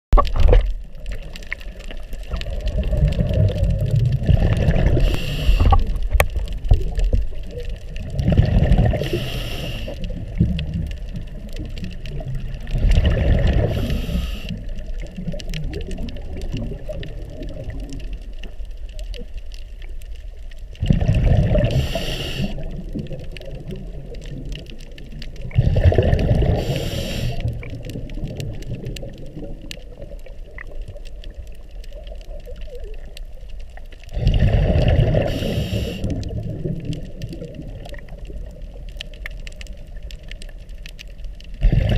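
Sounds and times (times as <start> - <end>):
exhaled bubbles gushing: 0.1 - 19.4, 20.7 - 41.9
diver breathing through regulator: 4.7 - 6.0, 8.8 - 10.1, 13.4 - 14.6, 21.5 - 22.8, 25.5 - 27.6, 34.2 - 36.3.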